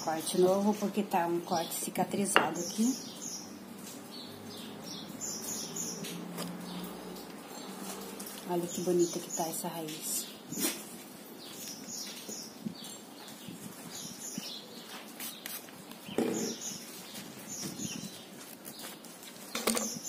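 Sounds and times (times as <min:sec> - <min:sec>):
birds chirping: 0:00.0 - 0:20.0.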